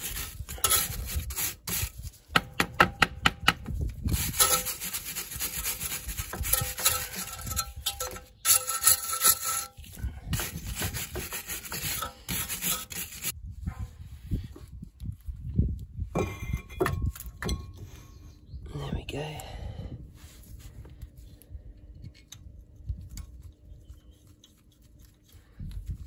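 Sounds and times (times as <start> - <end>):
metal tool scraping rust: 0.0 - 2.1, 4.0 - 13.4.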